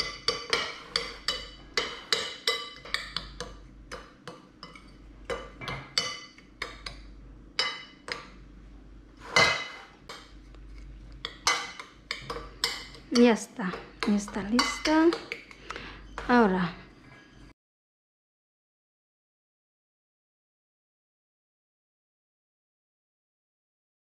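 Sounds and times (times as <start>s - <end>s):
utensil clinking against a bowl: 0.0s - 8.4s, 9.3s - 17.5s.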